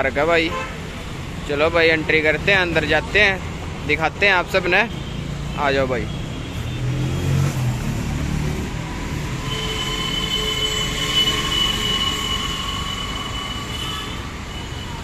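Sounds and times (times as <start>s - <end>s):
high-pitched squeal: 9.1s - 15.0s.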